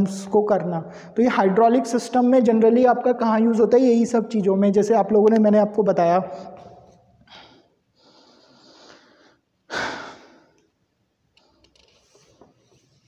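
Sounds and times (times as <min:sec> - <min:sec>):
man breathing close to microphone: 0:06.3 - 0:10.6.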